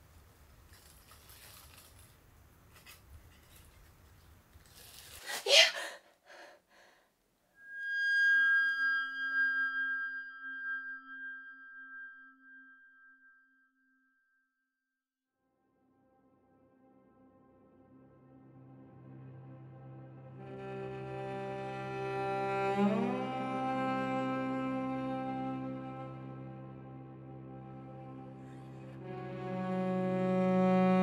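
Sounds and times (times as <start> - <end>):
tissue paper crinkling: 0.6 - 5.5
bell-like chime: 8.4 - 14.6.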